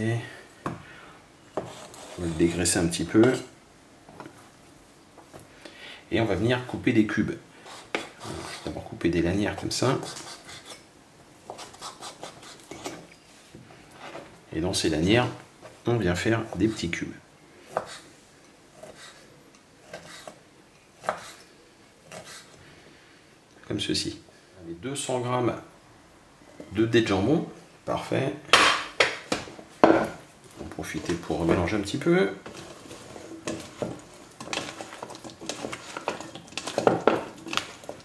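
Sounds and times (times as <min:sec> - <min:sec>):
spatula scraping steel bowl: 0:01.6 - 0:02.7, 0:32.4 - 0:38.0
knife chopping on wooden board: 0:21.0 - 0:21.4.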